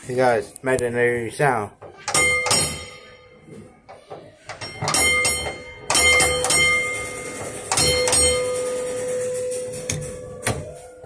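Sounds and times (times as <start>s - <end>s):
tram gong bell ringing: 4.6s - 10.2s.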